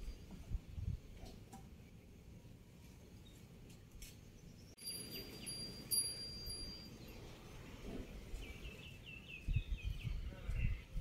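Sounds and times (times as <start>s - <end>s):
bird chirping: 4.2s - 11.0s
faint high ringing tone: 4.8s - 7.3s.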